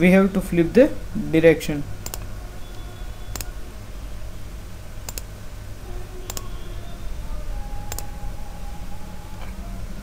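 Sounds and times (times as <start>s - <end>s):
low hum: 0.0s - 10.0s
mouse buttons clicking: 3.3s - 3.5s, 5.0s - 5.3s, 6.3s - 6.5s, 7.9s - 8.1s.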